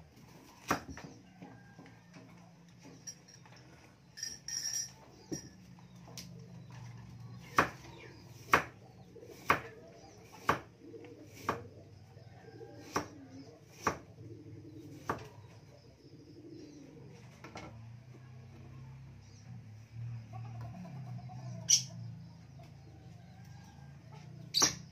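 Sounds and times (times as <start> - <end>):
knife chopping on wooden board: 0.6 - 1.0, 7.5 - 9.7, 10.3 - 10.7, 11.4 - 11.7, 12.8 - 14.1.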